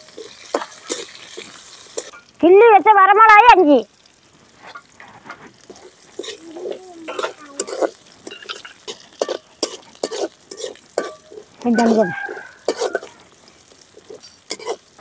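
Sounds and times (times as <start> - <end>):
frying in oil: 0.0 - 15.0
ladle scraping a steel pan: 7.1 - 12.0, 12.6 - 13.2, 14.0 - 14.9.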